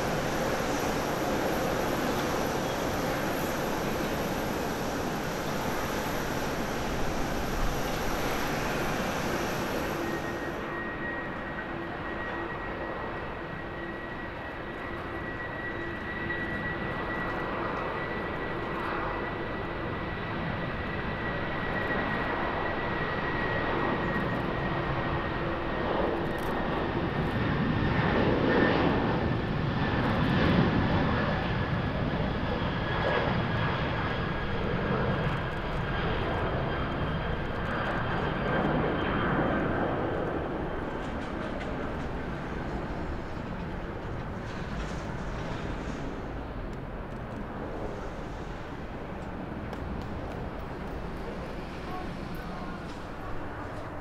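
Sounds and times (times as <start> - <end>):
high jet engine whine: 0.0 - 54.0
jet airliner taking off: 0.0 - 54.0.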